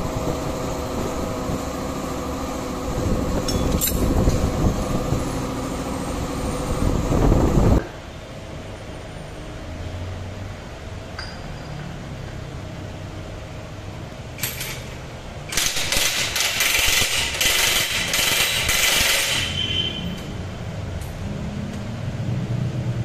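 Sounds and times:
impact wrench hammering: 0:15.5 - 0:19.6.

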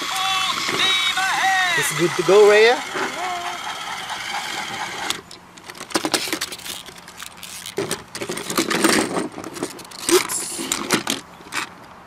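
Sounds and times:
plastic toy train clattering: 0:00.0 - 0:11.7.

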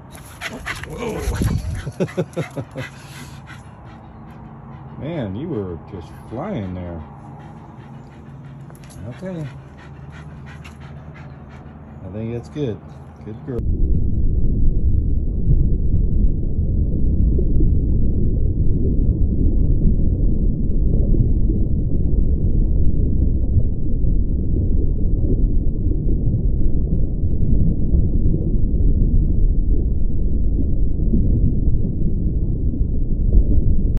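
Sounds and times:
deep muffled noise: 0:00.0 - 0:13.7.

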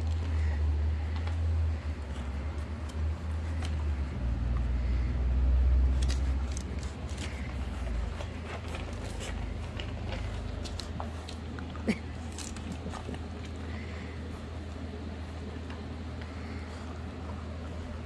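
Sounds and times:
puppies clicking and tapping: 0:05.9 - 0:14.0.

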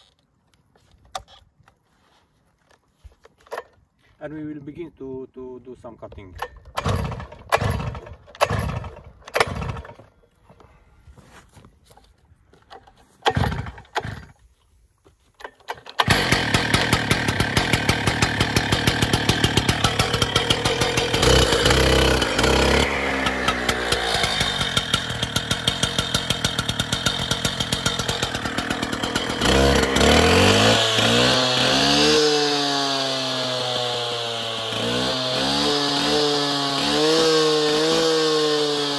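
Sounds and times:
starter cord pulls: 0:03.2 - 0:03.8, 0:06.0 - 0:10.1, 0:12.6 - 0:14.4, 0:15.4 - 0:31.6
cut-off saw engine running: 0:16.0 - 0:38.9.

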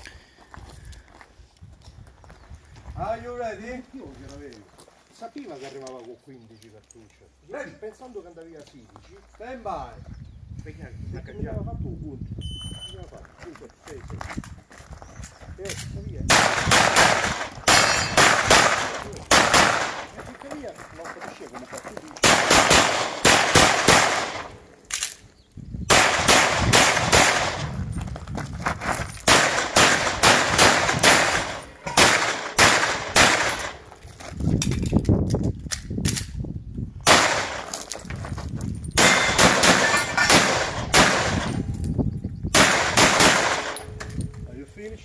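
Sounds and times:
pistol shots: 0:16.3 - 0:20.2, 0:22.2 - 0:25.2, 0:25.9 - 0:27.8, 0:29.3 - 0:33.8, 0:37.0 - 0:37.8, 0:39.0 - 0:41.7, 0:42.5 - 0:43.9.

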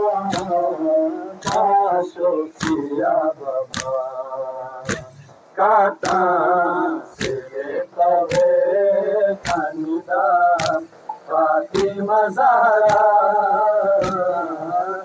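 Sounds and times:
man chanting a lament: 0:00.0 - 0:15.0
chest-beating slaps: 0:00.3 - 0:00.6, 0:01.4 - 0:01.7, 0:02.5 - 0:02.9, 0:03.7 - 0:04.0, 0:04.8 - 0:05.3, 0:06.0 - 0:06.3, 0:07.1 - 0:07.5, 0:08.3 - 0:08.6, 0:09.4 - 0:09.7, 0:10.6 - 0:12.0, 0:12.8 - 0:13.2, 0:14.0 - 0:14.3.

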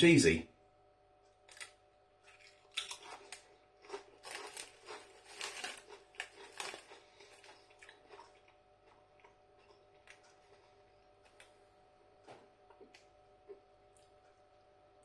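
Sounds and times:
crisps crunching while chewed: 0:01.4 - 0:11.7.

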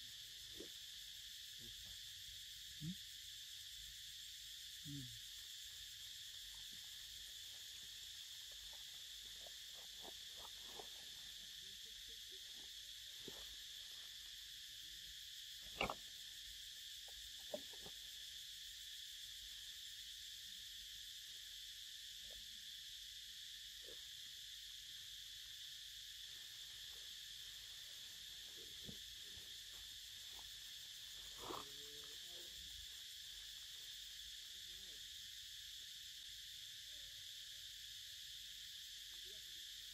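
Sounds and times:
high-pitched insect buzz: 0:00.0 - 0:39.9.

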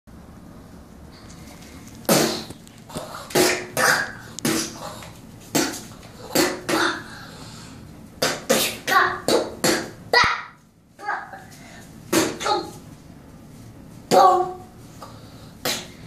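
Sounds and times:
boy making mouth fight sounds: 0:02.1 - 0:07.1, 0:08.2 - 0:11.5, 0:12.1 - 0:12.8, 0:14.1 - 0:14.6, 0:15.6 - 0:16.0.

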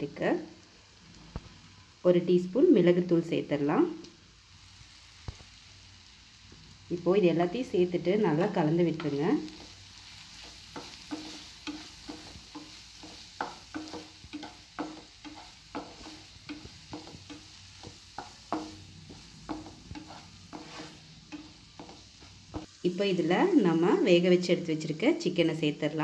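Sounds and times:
soft sizzle of frying: 0:00.0 - 0:26.0
spatula scraping a pan: 0:08.4 - 0:22.7.

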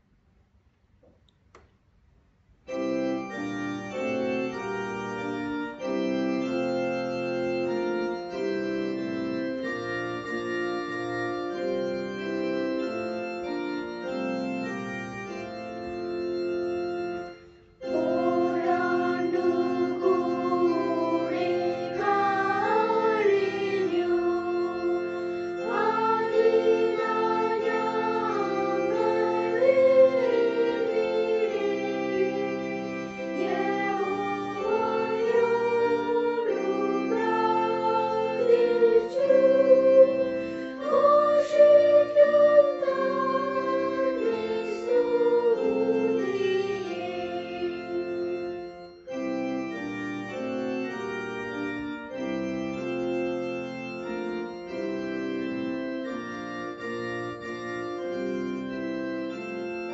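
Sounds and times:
electronic keyboard chords: 0:02.7 - 0:59.9
children singing a hymn: 0:17.8 - 0:48.6.

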